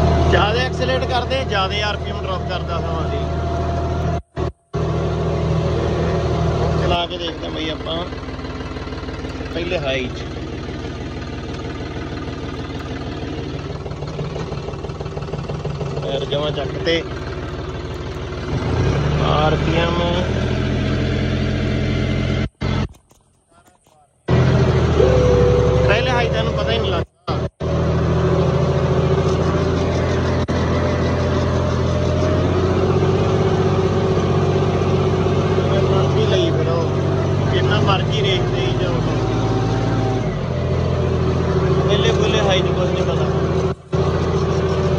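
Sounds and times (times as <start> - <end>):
tractor diesel engine running: 0.0 - 44.9.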